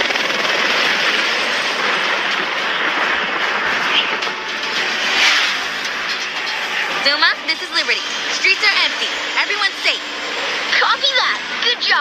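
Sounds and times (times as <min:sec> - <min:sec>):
helicopter in stormy wind: 0:00.0 - 0:12.0.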